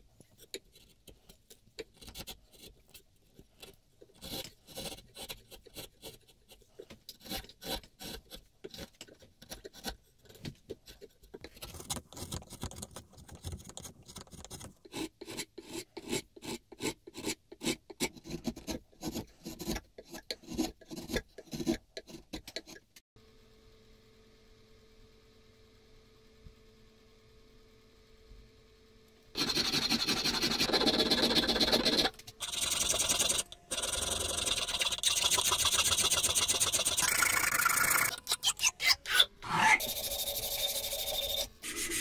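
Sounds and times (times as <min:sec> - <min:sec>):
chisel scraping wood: 0:03.4 - 0:12.9.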